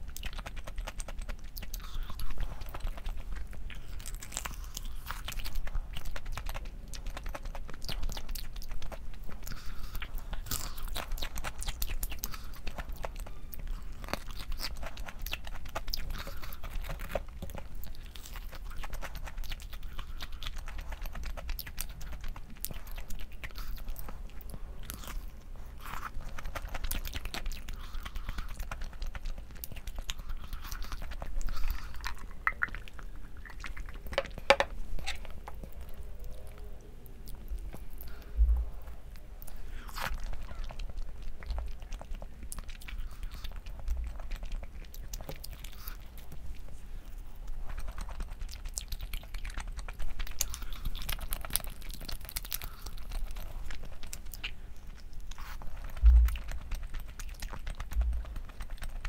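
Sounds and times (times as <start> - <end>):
person chewing food: 0.0 - 59.0
dull low thumps: 37.6 - 38.9, 56.0 - 56.5, 57.9 - 58.4.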